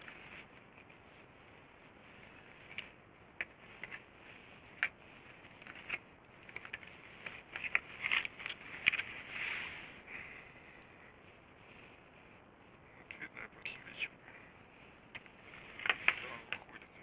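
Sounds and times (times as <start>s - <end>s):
plastic clicks and crinkling: 2.5s - 4.1s, 4.7s - 9.2s, 15.1s - 16.8s.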